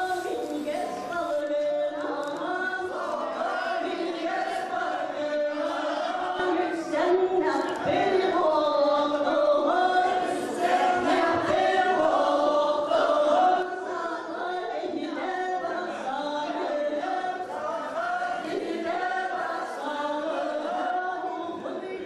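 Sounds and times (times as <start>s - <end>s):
group of voices chanting: 9.2s - 14.0s.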